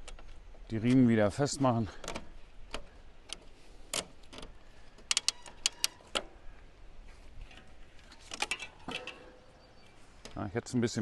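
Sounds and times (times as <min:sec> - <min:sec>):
ratchet straps clicking: 0:02.0 - 0:06.4.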